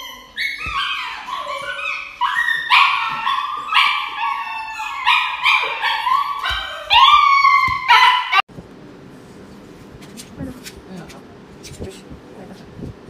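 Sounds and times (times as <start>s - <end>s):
dog yelping and howling: 0.0s - 8.5s.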